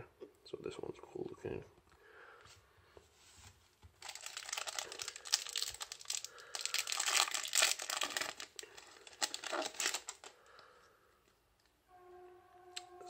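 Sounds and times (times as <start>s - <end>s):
foil wrapper crinkling: 4.0s - 10.3s.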